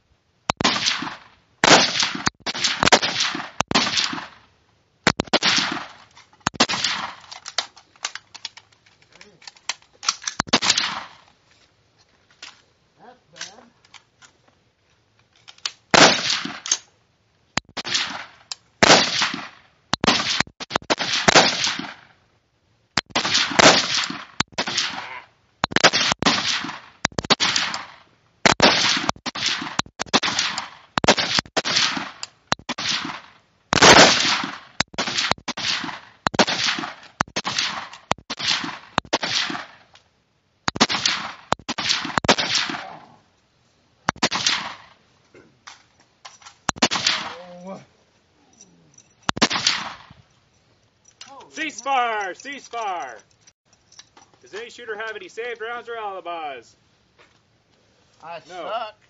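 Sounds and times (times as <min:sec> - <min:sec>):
rifle gunfire: 0:00.6 - 0:04.4, 0:05.0 - 0:07.3, 0:10.5 - 0:11.2, 0:15.9 - 0:16.8, 0:17.8 - 0:22.1, 0:23.1 - 0:25.0, 0:25.8 - 0:39.8, 0:40.7 - 0:43.0, 0:44.2 - 0:44.9, 0:46.8 - 0:47.4, 0:49.4 - 0:50.2.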